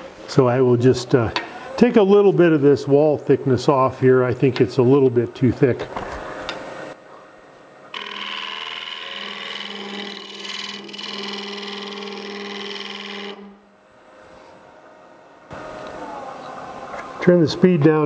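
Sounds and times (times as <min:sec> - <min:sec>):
low lathe hum: 0:02.9 - 0:17.7
scraper cutting wood on lathe: 0:07.9 - 0:13.6.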